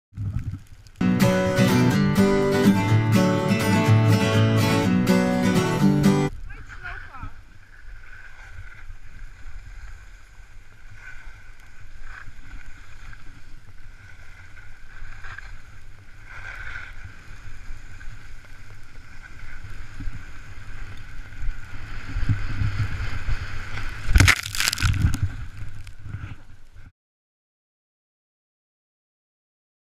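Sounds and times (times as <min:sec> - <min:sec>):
wind and snow rushing: 0:06.3 - 0:26.9
crashes into snow: 0:23.9 - 0:26.2.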